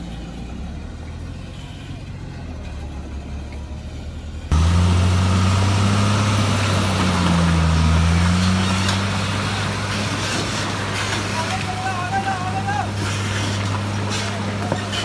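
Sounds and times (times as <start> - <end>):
truck diesel engine running: 4.4 - 15.0.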